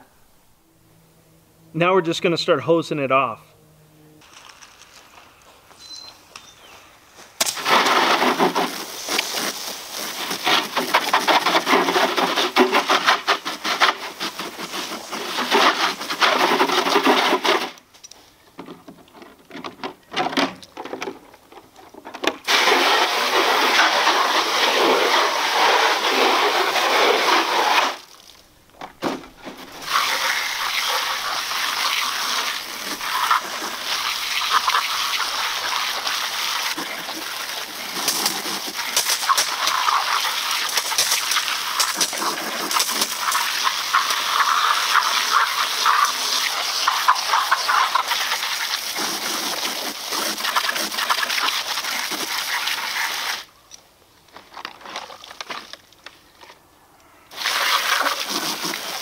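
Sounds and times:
hose nozzle spraying water: 0:07.4 - 0:17.8, 0:22.4 - 0:28.2, 0:29.4 - 0:53.5, 0:57.3 - 0:59.0.

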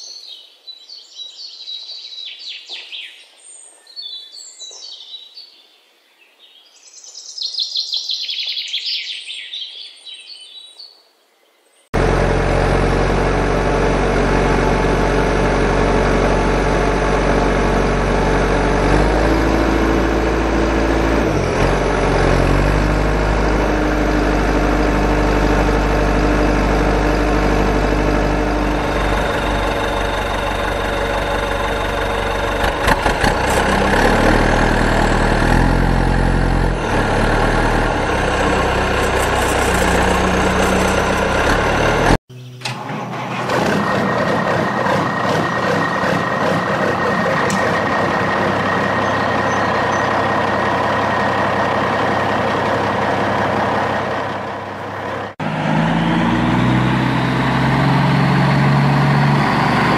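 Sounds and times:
large engine revving: 0:12.0 - 0:59.9.

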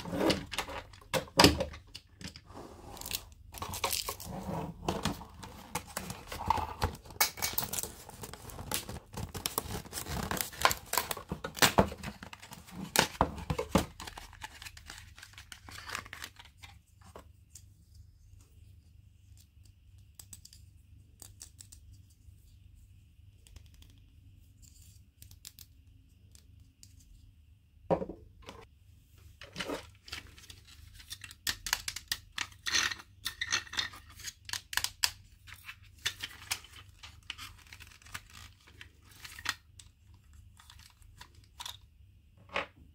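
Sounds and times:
packaging tearing and crinkling: 0:07.6 - 0:13.1.

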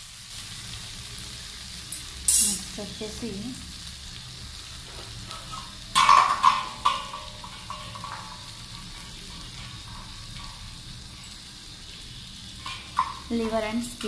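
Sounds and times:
food sizzling in hot oil: 0:00.0 - 0:14.0
clattering knocks against pan: 0:06.0 - 0:09.0, 0:12.6 - 0:13.6.

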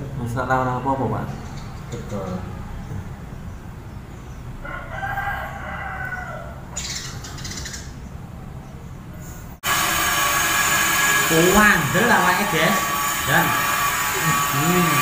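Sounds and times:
rooster crowing: 0:04.6 - 0:06.7
loud steady buzz: 0:09.6 - 0:15.0.

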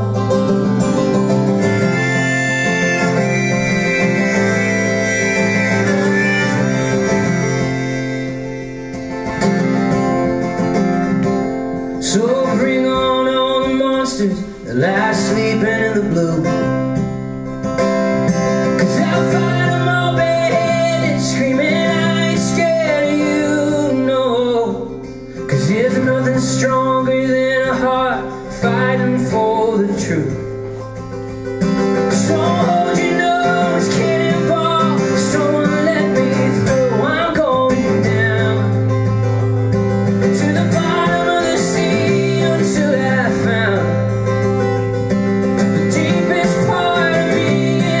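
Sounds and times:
acoustic guitar: 0:00.0 - 0:48.0
man singing: 0:01.6 - 0:08.3, 0:11.9 - 0:17.0, 0:18.6 - 0:30.6, 0:31.8 - 0:39.2, 0:40.2 - 0:44.5, 0:45.6 - 0:48.0.

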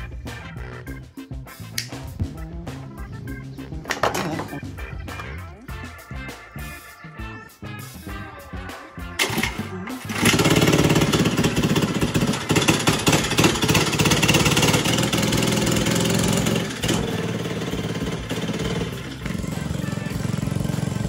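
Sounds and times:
small engine running: 0:09.2 - 0:21.0.

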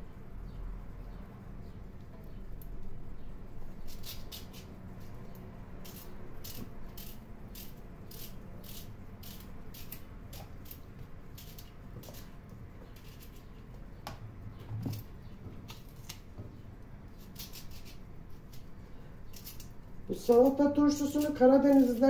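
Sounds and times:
knife slicing cucumber: 0:03.8 - 0:04.8, 0:05.8 - 0:13.6, 0:17.1 - 0:18.7, 0:19.3 - 0:22.0.

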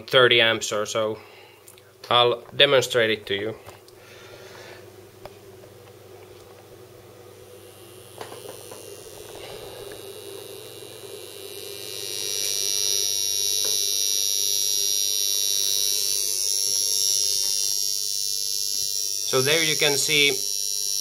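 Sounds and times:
inductor buzzing whine: 0:00.0 - 0:21.0.

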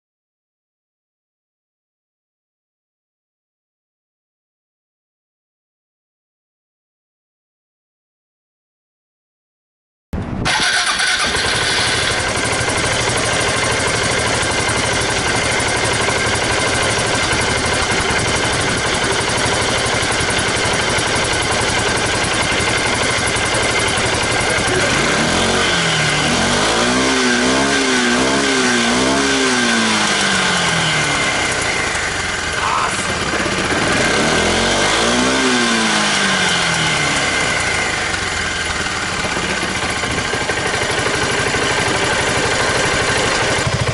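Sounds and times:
scooter engine revving: 0:10.4 - 0:43.9
scooter engine idling: 0:10.5 - 0:43.9.

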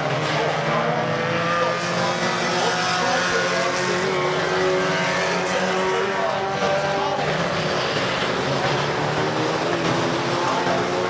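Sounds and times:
racing car engines: 0:00.0 - 0:11.0.

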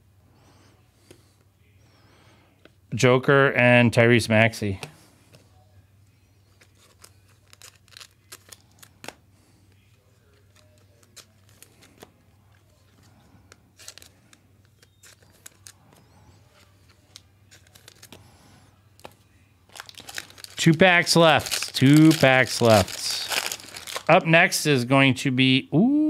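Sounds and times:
faint low hum: 0:00.0 - 0:24.5
cards being shuffled: 0:06.5 - 0:18.2, 0:19.0 - 0:24.2
foil wrapper crinkling and tearing: 0:06.6 - 0:09.2, 0:09.8 - 0:12.1, 0:13.8 - 0:18.3, 0:19.0 - 0:24.2.

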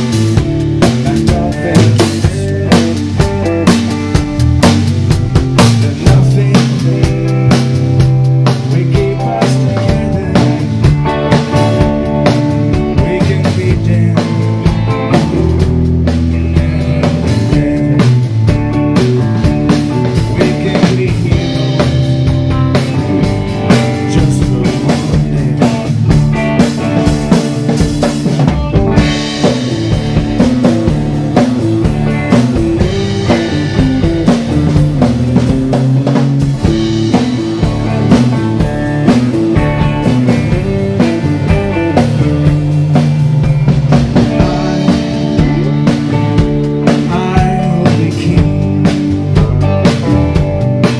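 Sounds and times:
drum kit beat: 0:00.0 - 0:50.9
live rock band playing: 0:00.0 - 0:50.9.

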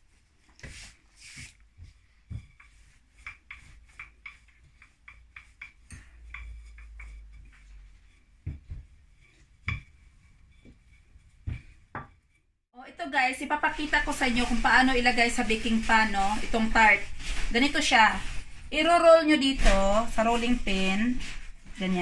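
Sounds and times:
rolling pin rumbling on dough: 0:01.7 - 0:12.3.

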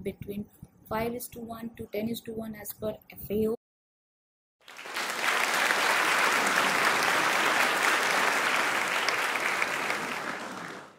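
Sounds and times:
audience applauding: 0:04.6 - 0:10.9.

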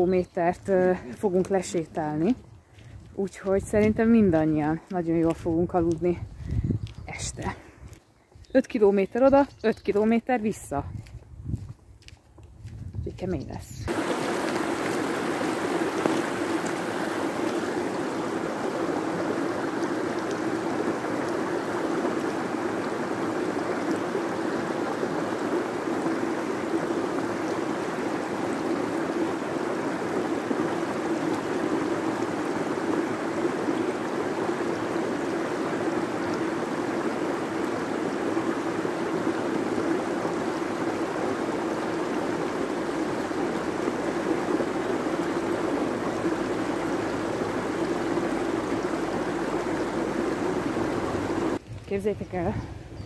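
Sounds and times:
creek water rushing over weir: 0:13.9 - 0:51.6.

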